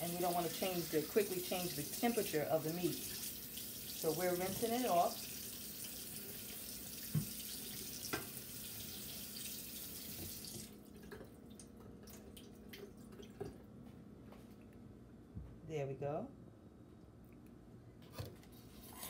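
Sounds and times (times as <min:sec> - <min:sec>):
tap water running into sink: 0:00.1 - 0:13.6
water dripping: 0:00.6 - 0:13.6.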